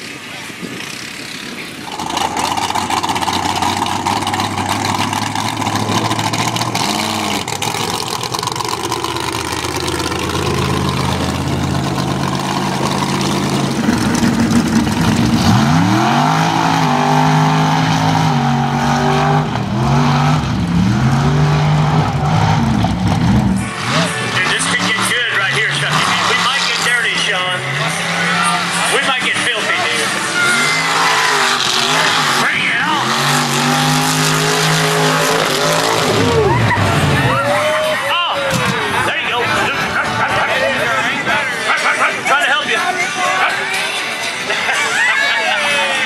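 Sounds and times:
truck engines running loud: 0.0 - 46.0
engine revving: 0.9 - 37.4.

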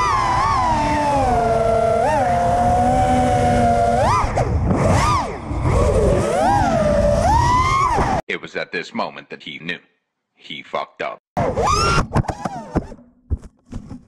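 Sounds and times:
drone motors whining: 0.0 - 8.2.

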